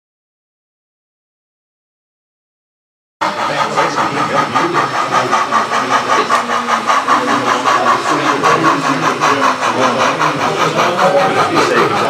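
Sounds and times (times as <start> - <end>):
model steam locomotive chuffing: 3.2 - 12.0.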